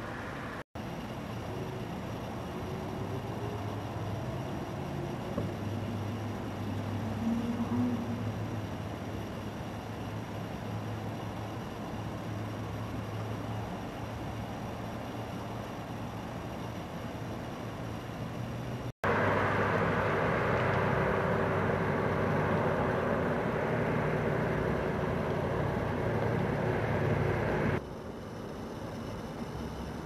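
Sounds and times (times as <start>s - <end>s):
traffic rumble: 0.0s - 30.0s
held hum: 19.0s - 27.8s.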